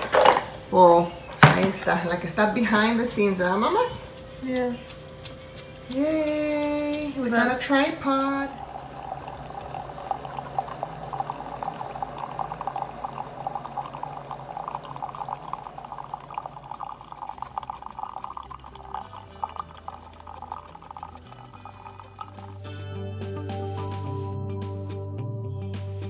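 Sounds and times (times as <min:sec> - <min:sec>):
coffee trickling and dripping: 0:00.0 - 0:22.7
music: 0:17.6 - 0:26.0.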